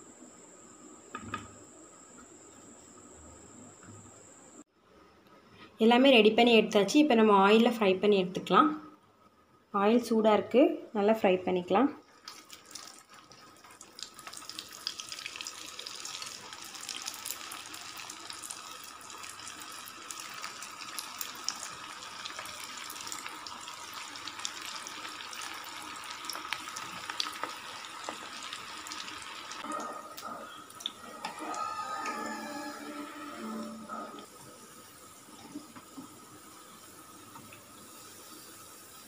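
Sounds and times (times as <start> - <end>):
food deep-frying in hot oil: 12.0 - 39.0.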